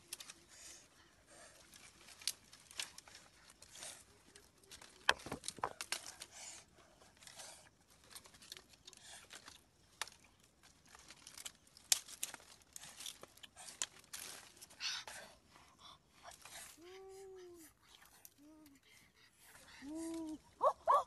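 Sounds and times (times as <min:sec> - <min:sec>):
dry crackling rustle: 0:00.0 - 0:21.0
dry sticks snapping: 0:00.1 - 0:00.4, 0:01.6 - 0:03.8, 0:04.4 - 0:06.6, 0:08.0 - 0:14.7.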